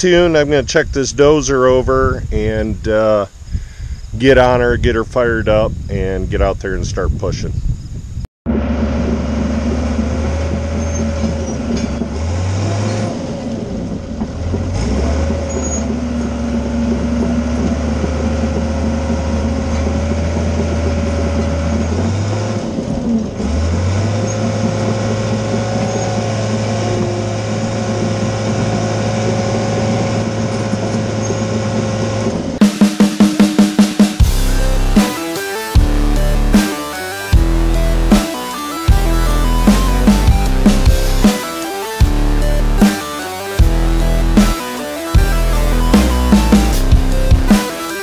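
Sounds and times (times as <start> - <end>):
diesel dozer engine running: 8.5 - 32.6, 34.2 - 47.8.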